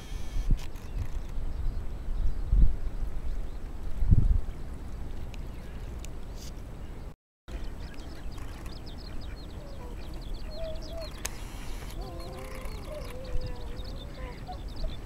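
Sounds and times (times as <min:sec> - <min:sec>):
low wind rumble: 0:00.4 - 0:07.1, 0:07.7 - 0:15.0
small birds chirping: 0:05.3 - 0:15.0
ducks calling softly: 0:05.6 - 0:15.0.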